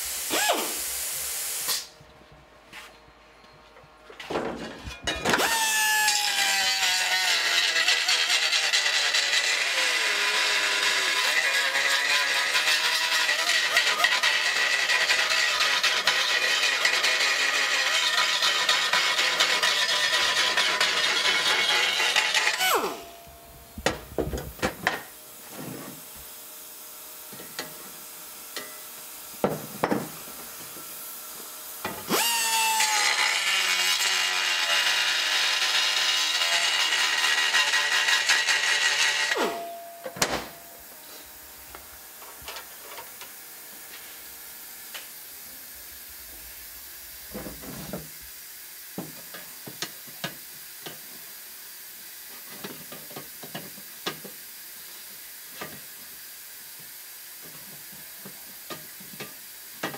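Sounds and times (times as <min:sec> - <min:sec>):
power tool on sheet metal: 0:00.0 - 0:01.9, 0:05.1 - 0:48.3.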